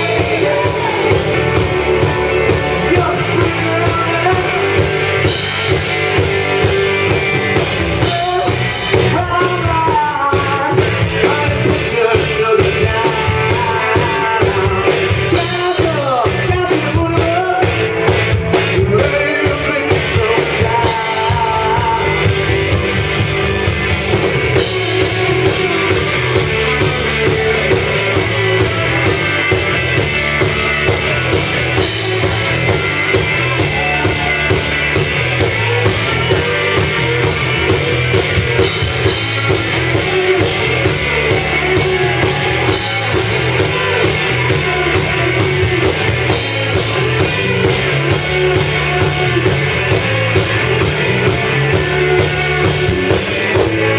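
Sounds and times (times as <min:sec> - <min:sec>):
man singing: 0:00.0 - 0:05.4, 0:07.9 - 0:22.8, 0:24.5 - 0:29.7, 0:38.5 - 0:53.9
bass guitar: 0:00.0 - 0:53.9
electric guitars: 0:00.0 - 0:53.9
pounding drum kit: 0:00.0 - 0:53.9.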